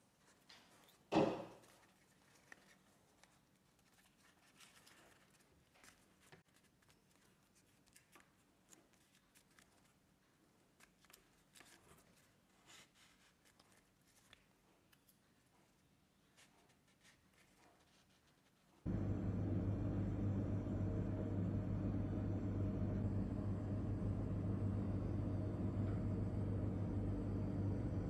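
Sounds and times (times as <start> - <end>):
paper rustling and crinkling: 0.0 - 18.8.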